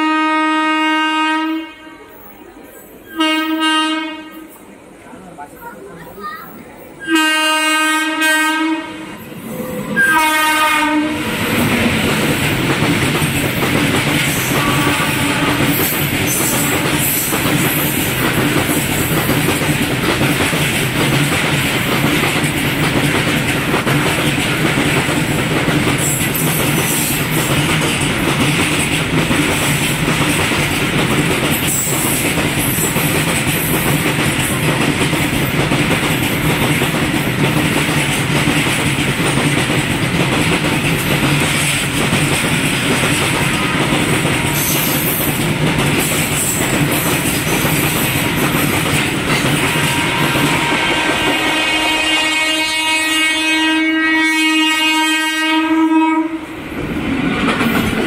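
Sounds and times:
train horn: 0.0s - 2.2s, 3.1s - 4.6s, 7.0s - 11.4s, 14.3s - 17.3s, 49.6s - 56.6s
train wheels rushing on rails: 0.0s - 58.0s.

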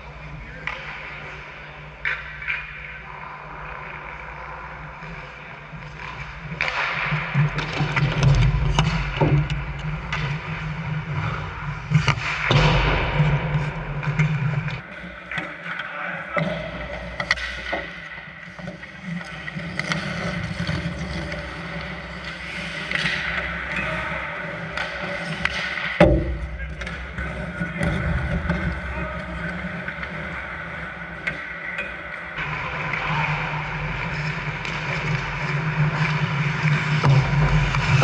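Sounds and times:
hockey sticks and puck clacking: 0.0s - 38.0s
skate blades scraping ice: 16.9s - 26.0s, 32.4s - 38.0s
thuds: 25.5s - 27.2s.

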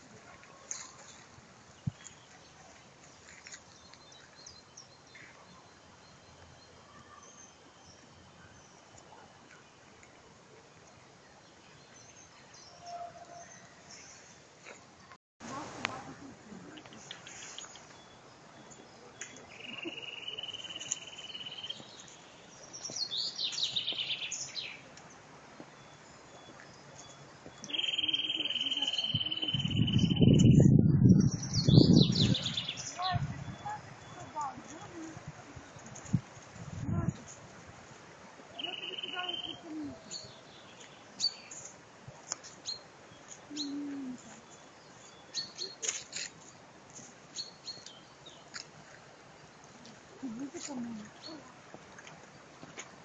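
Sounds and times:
songbirds chirping: 0.0s - 53.0s
songbird high trill: 27.1s - 30.6s, 38.6s - 41.6s.

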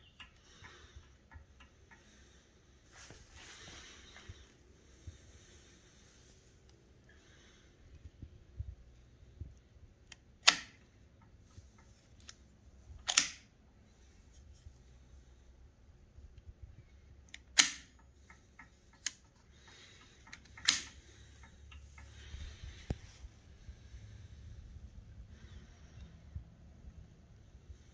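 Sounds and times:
machine gun mechanism clicking: 13.0s - 13.5s, 20.2s - 21.0s.

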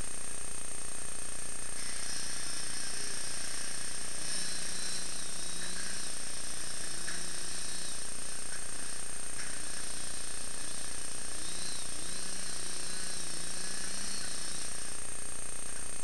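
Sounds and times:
faint engine tone: 0.0s - 16.0s
motor running steadily: 0.0s - 16.0s.

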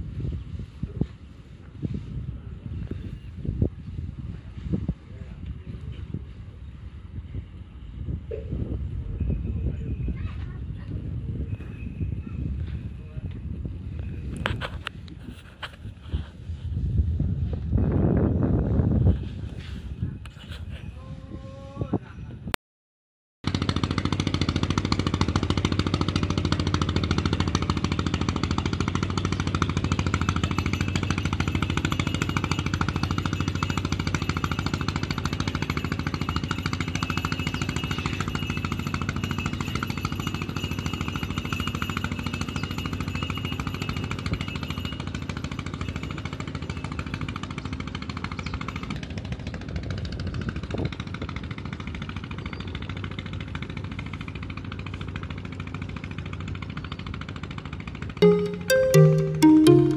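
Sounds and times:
boat engine chugging: 23.5s - 48.6s.

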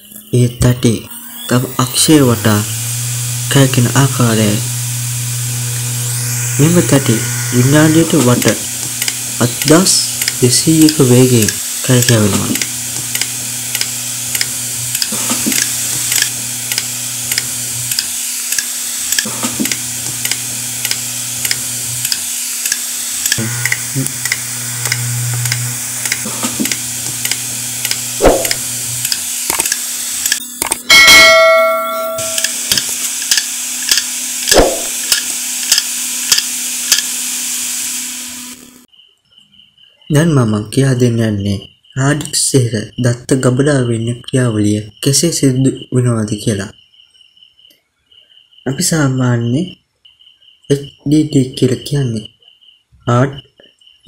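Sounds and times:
loud ringing tone: 0.0s - 12.9s, 23.1s - 29.0s, 30.4s - 33.0s
hard disk motor hum: 0.0s - 38.9s
hard disk ticking: 1.8s - 31.3s.

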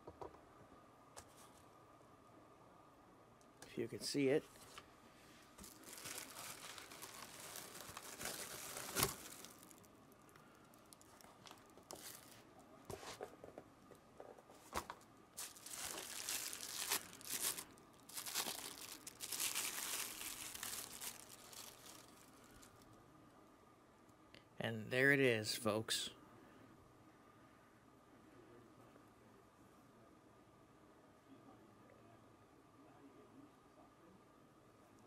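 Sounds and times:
packing material crinkling and tearing: 5.6s - 12.5s, 14.8s - 22.8s.

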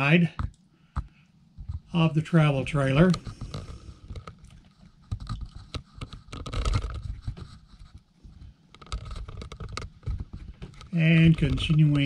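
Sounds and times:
camera handling scrapes and clicks: 3.1s - 10.9s.

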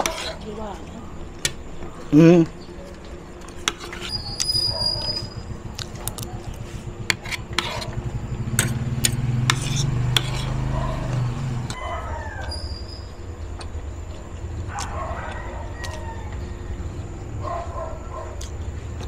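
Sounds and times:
passing vehicle engine rumble: 4.0s - 19.0s.

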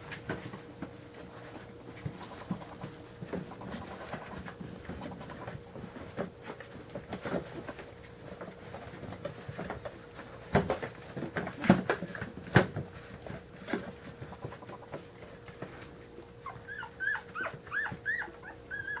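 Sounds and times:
puppies squeaking: 16.4s - 19.0s
puppies whimpering: 16.4s - 19.0s.

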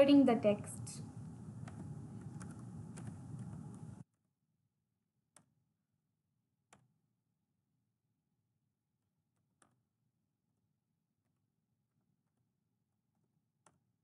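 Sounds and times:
keyboard keys clicking: 1.6s - 4.0s.

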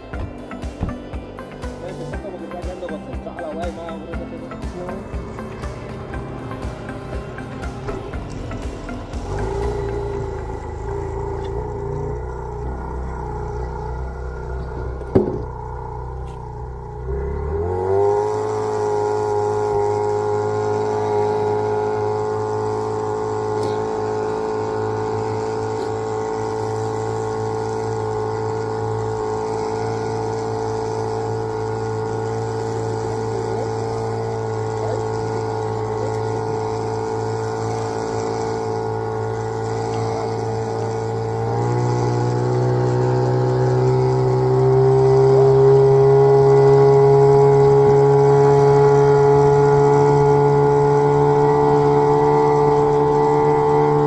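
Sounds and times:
outboard motor running: 0.0s - 54.0s
sharp knock: 15.1s - 15.4s.

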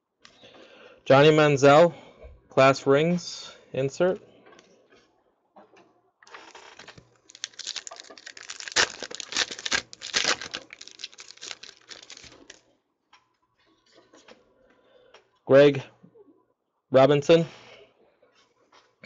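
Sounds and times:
foil wrapper crinkling and tearing: 6.3s - 12.6s.

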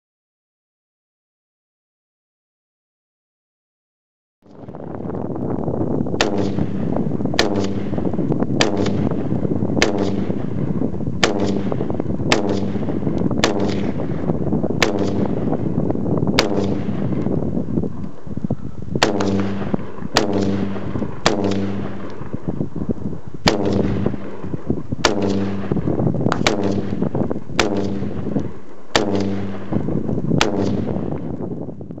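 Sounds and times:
steady low rumble: 4.5s - 32.0s
rifle single shots: 6.2s - 15.6s, 16.3s - 17.4s, 19.0s - 22.5s, 23.4s - 31.3s.

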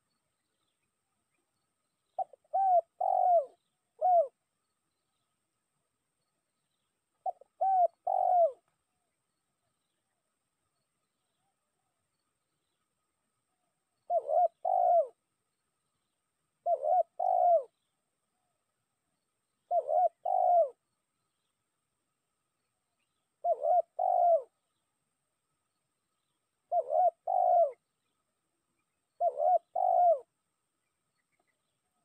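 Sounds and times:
dove cooing: 2.2s - 4.4s, 7.2s - 8.7s, 14.1s - 15.2s, 16.6s - 17.8s, 19.7s - 20.8s, 23.4s - 24.6s, 26.7s - 27.8s, 29.2s - 30.4s.

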